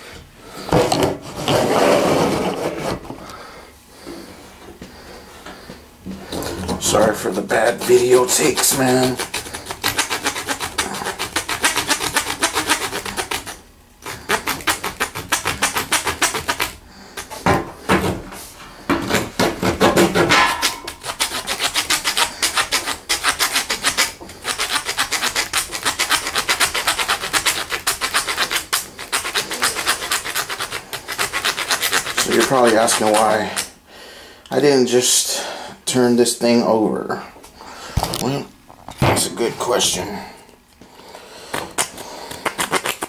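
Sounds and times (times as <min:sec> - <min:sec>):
saw rasping through wood: 0:06.8 - 0:17.4, 0:19.4 - 0:33.7.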